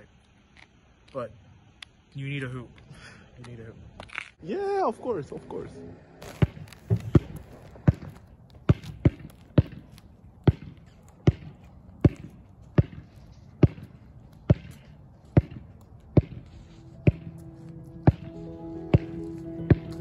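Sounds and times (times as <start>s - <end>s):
basketball bouncing on asphalt: 6.2s - 17.4s, 18.0s - 20.0s.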